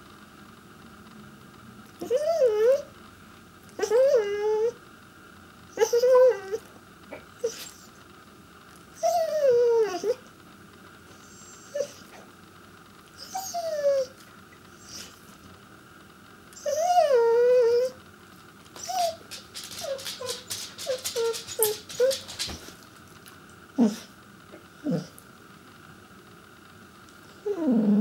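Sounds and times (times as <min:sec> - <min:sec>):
dog whining: 0:02.0 - 0:02.9, 0:03.8 - 0:04.8, 0:05.7 - 0:08.0, 0:09.0 - 0:10.3, 0:11.2 - 0:12.3, 0:13.2 - 0:14.2, 0:14.8 - 0:15.2, 0:16.6 - 0:18.0, 0:18.8 - 0:22.8, 0:23.8 - 0:24.2, 0:24.8 - 0:25.2, 0:27.3 - 0:28.0
dog yipping and grumbling: 0:02.0 - 0:02.9, 0:03.8 - 0:04.8, 0:05.7 - 0:07.9, 0:09.0 - 0:10.3, 0:11.4 - 0:12.2, 0:13.2 - 0:14.2, 0:16.6 - 0:18.0, 0:18.8 - 0:22.7, 0:23.8 - 0:24.1, 0:24.8 - 0:25.2, 0:27.3 - 0:28.0.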